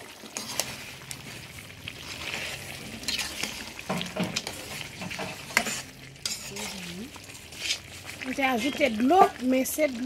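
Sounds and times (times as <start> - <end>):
meat sizzling in a pot: 0.0 - 10.0.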